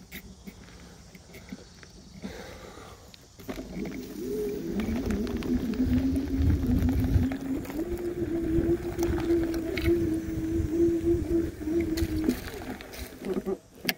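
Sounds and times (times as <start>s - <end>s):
electric bike motor whining: 2.3s - 13.9s
bike rumbling over rough dirt: 3.3s - 13.9s.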